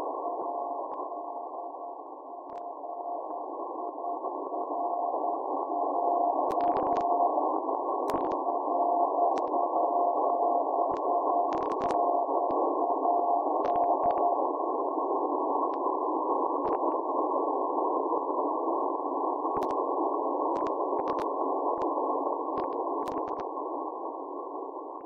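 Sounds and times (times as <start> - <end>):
faint morse tone: 0.0 - 7.4
shortwave receiver hiss: 0.0 - 25.0
static clicks: 0.1 - 17.1, 19.0 - 25.0.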